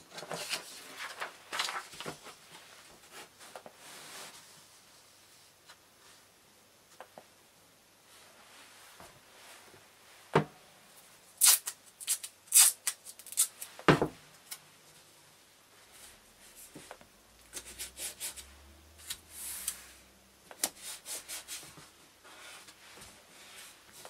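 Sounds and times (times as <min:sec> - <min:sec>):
masking tape ripping off roll: 0:11.4 - 0:13.7.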